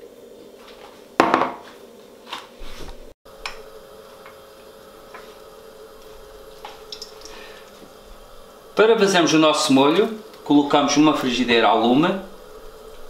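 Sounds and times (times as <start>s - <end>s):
steady low hum: 2.9s - 13.0s.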